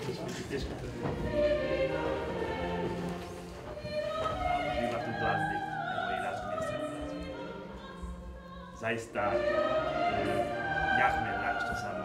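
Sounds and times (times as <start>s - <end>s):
orchestral accompaniment: 0.0s - 12.0s
operatic voice singing: 3.8s - 12.0s.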